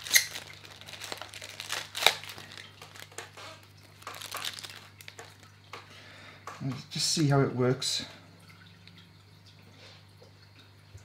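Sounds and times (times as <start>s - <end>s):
plastic bag crinkling: 0.0s - 5.6s.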